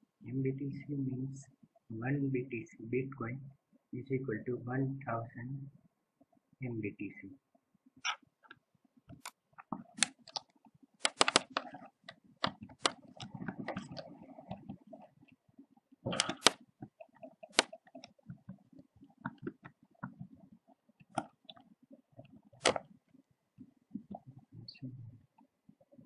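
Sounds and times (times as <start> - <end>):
mouse clicks: 8.0 - 14.7, 16.2 - 18.2, 22.6 - 22.9
keyboard keystrokes: 9.1 - 11.8, 12.4 - 14.6, 16.2 - 16.6, 17.4 - 18.1, 22.6 - 22.9.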